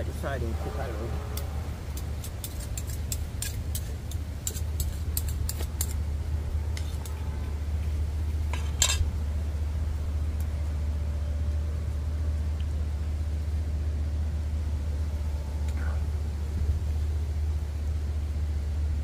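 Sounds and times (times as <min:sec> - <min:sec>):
low rumble: 0:00.0 - 0:19.0
metal utensils clinking on pot: 0:08.5 - 0:09.0.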